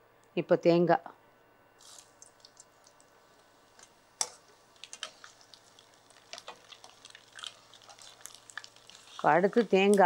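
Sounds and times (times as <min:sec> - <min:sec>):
food frying in hot oil: 0:01.8 - 0:03.0, 0:03.6 - 0:10.0.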